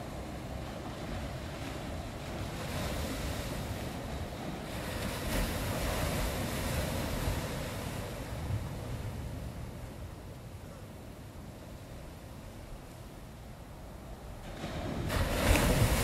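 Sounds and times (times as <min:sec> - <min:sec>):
ocean wave washing in: 0:14.4 - 0:16.0.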